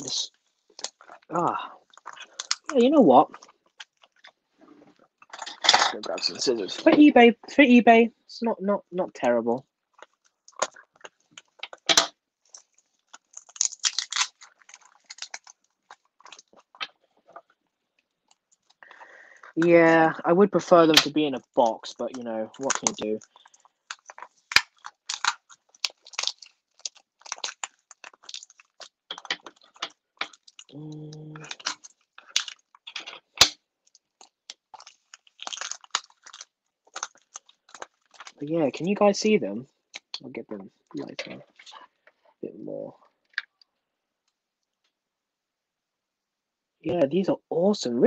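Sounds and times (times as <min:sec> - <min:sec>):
plastic film crinkling: 0:00.0 - 0:05.9, 0:09.9 - 0:19.8, 0:20.9 - 0:38.9
plastic wrapping rustling: 0:09.9 - 0:20.2, 0:20.9 - 0:38.9.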